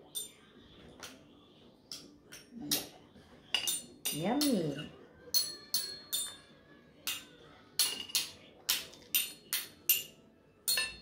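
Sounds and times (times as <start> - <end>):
metal spoon clinking on ceramic bowl: 0.0 - 0.4, 3.5 - 11.0.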